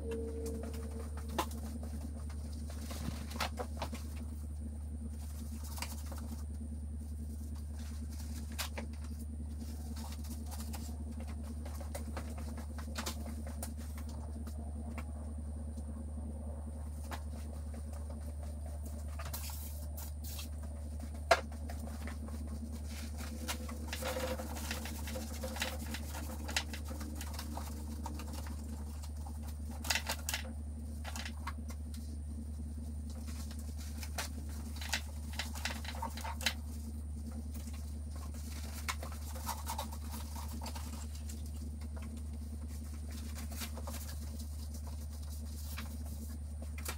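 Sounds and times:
steady low hum: 0:00.0 - 0:46.9
towel scrubbing engine parts: 0:16.3 - 0:46.9.

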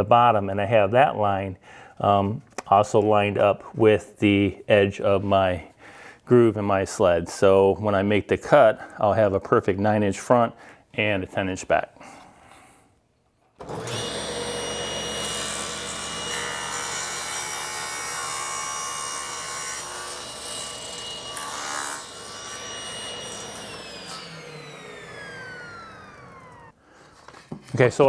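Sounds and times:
table saw cutting wood: 0:13.6 - 0:26.8
table saw running: 0:13.6 - 0:26.8.

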